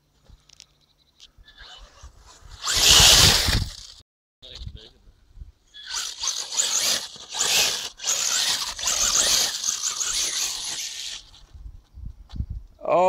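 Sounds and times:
rc car motor whining: 1.4 - 4.0, 5.7 - 11.4
tyres scrabbling on dirt: 2.6 - 4.0, 5.8 - 11.5.

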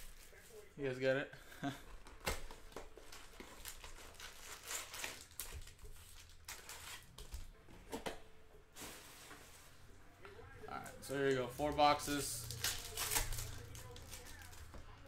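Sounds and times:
foil wrappers crinkling: 2.3 - 7.5, 10.8 - 15.0.

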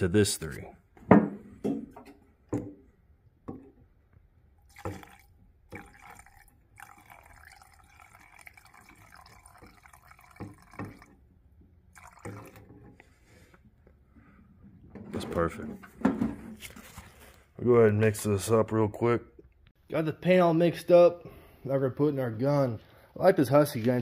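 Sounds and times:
liquid trickling into a cup: 4.6 - 11.3, 11.9 - 13.0.

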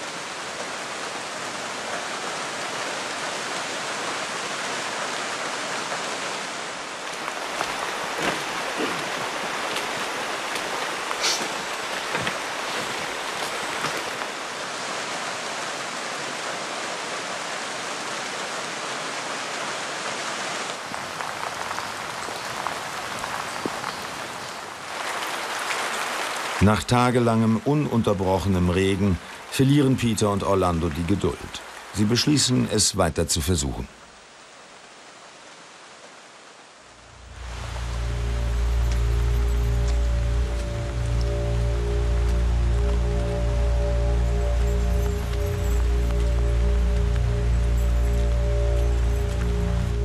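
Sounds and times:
rain falling on foliage: 0.0 - 50.0
sharp raindrop taps: 7.0 - 14.3.

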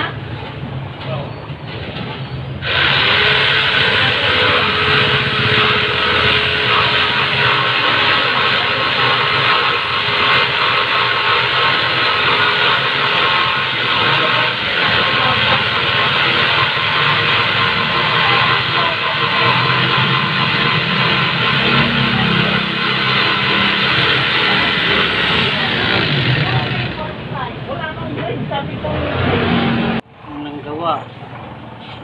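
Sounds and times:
jigsaw cutting wood: 2.6 - 27.1.

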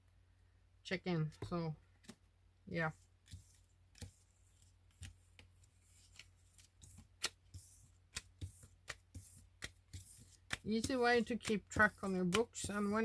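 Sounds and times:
cards sliding: 3.2 - 13.0
plastic cards clicking and tapping: 3.3 - 13.0.

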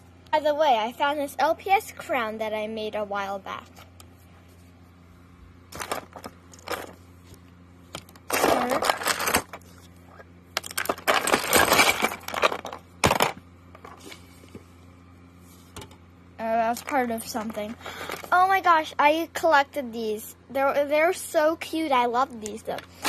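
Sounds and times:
plastic toys rattling: 5.7 - 7.0, 8.0 - 9.7, 10.6 - 14.1, 16.8 - 18.4.

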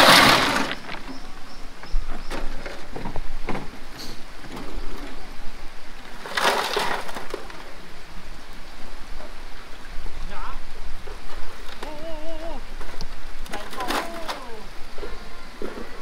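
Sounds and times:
rocks knocking and clattering: 0.0 - 5.2, 6.1 - 7.8, 11.2 - 12.0, 12.7 - 14.6.

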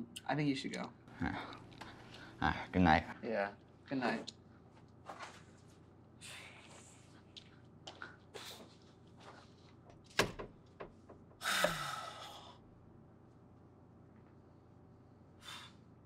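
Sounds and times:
door shutting with a click: 10.1 - 11.2
person sighing: 11.4 - 12.6.

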